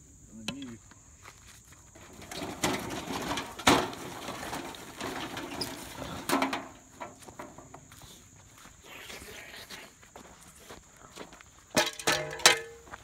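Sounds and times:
metal grill scraping over dirt: 1.9 - 8.2
metal clanks: 2.2 - 7.6, 11.7 - 13.0.

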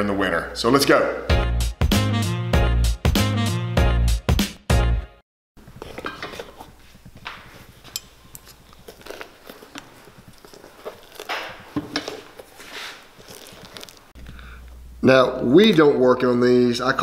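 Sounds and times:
pincers clicking and scraping: 7.5 - 12.5.

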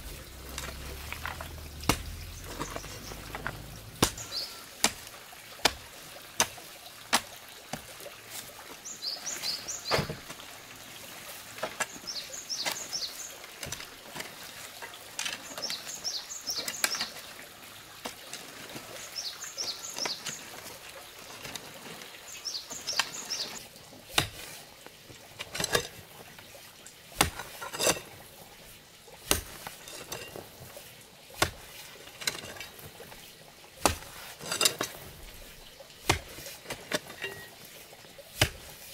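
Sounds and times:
hoe chopping into dirt: 0.6 - 5.0, 29.2 - 30.2, 33.8 - 34.9.

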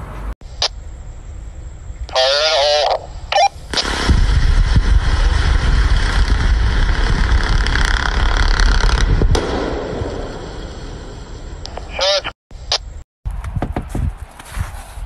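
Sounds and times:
off-road vehicle engine rumbling: 3.2 - 9.5.

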